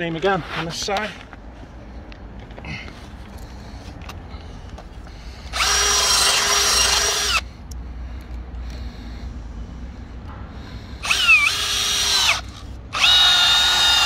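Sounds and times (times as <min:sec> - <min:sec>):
cordless drill boring into wood: 0:05.5 - 0:07.4, 0:11.0 - 0:14.0.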